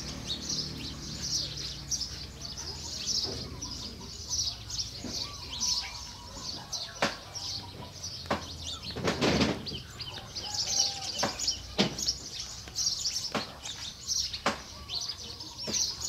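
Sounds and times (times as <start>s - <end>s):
chicks peeping: 0.0s - 16.0s
sharp knocks: 8.3s - 9.8s, 14.4s - 14.7s.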